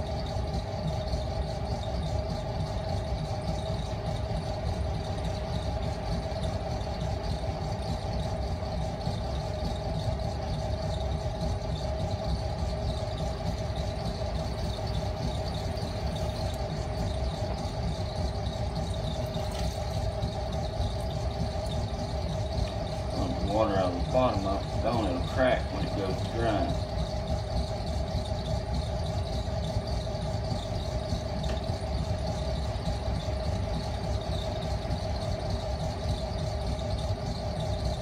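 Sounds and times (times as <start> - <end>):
potter's wheel motor humming: 0.0 - 38.0.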